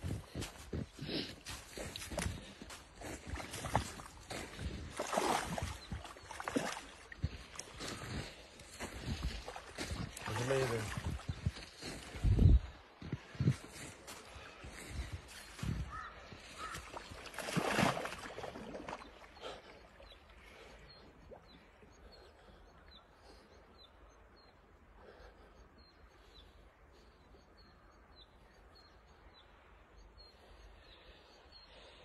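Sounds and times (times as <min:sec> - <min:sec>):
icy water splashing: 0:00.0 - 0:12.2, 0:15.0 - 0:22.6.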